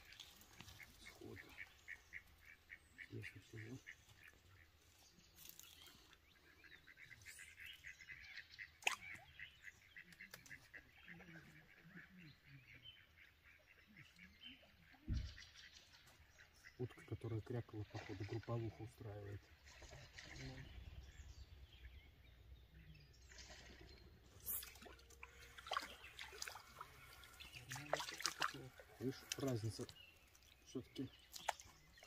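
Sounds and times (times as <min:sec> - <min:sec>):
faint duck quacking: 0:00.0 - 0:05.0, 0:06.4 - 0:22.0.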